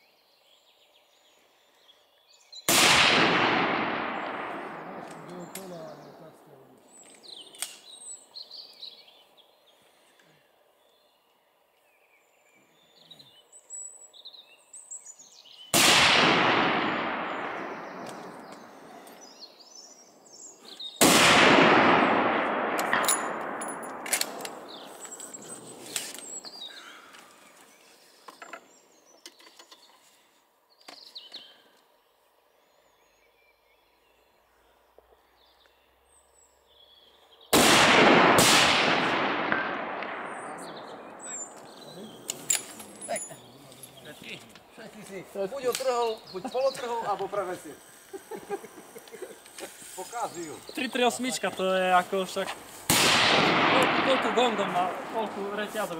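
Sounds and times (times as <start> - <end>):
rifle shots with long echo: 2.7 - 6.4, 15.7 - 19.0, 20.9 - 25.7, 37.4 - 42.7, 52.2 - 55.9
light sharp clicks: 5.0 - 5.7.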